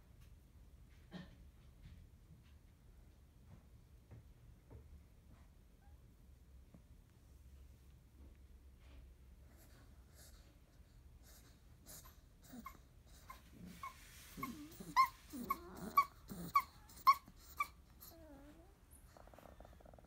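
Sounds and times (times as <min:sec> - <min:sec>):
puppy whining: 0:11.2 - 0:20.0
puppy whimpering and squeaking: 0:11.9 - 0:19.6.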